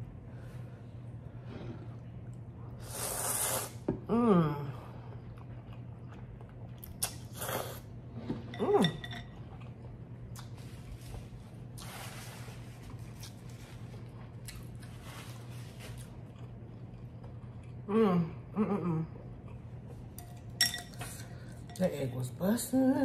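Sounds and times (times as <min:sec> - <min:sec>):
steady low hum: 0:00.0 - 0:23.0
person slurping noodles: 0:02.8 - 0:03.8
person chewing: 0:05.2 - 0:07.8, 0:12.9 - 0:15.0, 0:15.9 - 0:17.9.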